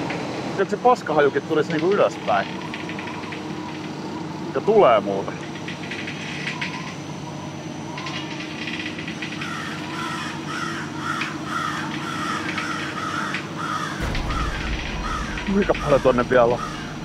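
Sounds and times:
crows cawing: 8.0s - 17.0s
low hum: 14.0s - 17.0s.

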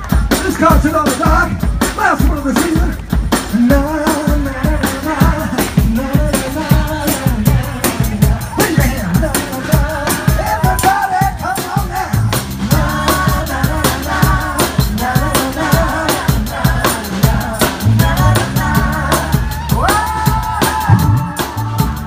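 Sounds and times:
live rock band playing: 0.0s - 22.0s
man singing lead vocal: 0.3s - 22.0s
woman singing backing vocal: 12.7s - 21.8s.

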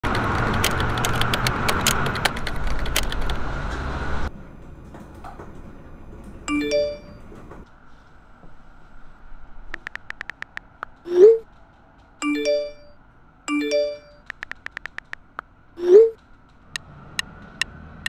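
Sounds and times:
loud steady noise with clicks: 0.0s - 6.4s, 9.7s - 12.8s, 13.7s - 15.5s
notification chime: 6.5s - 7.2s, 12.2s - 14.2s.

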